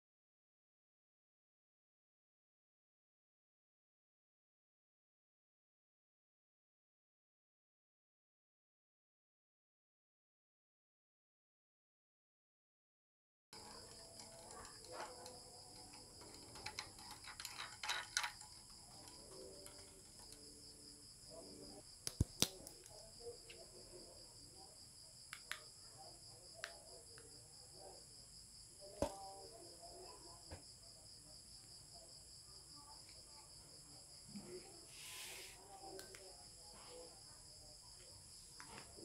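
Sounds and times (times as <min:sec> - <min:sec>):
crickets trilling: 0:13.6 - 0:39.0.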